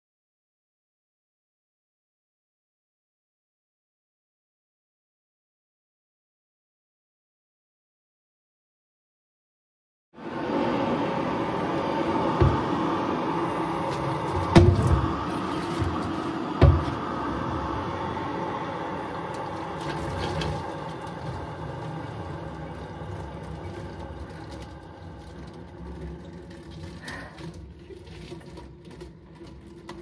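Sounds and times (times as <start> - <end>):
water pouring into plastic bottle: 13.6 - 17.0, 19.0 - 30.0.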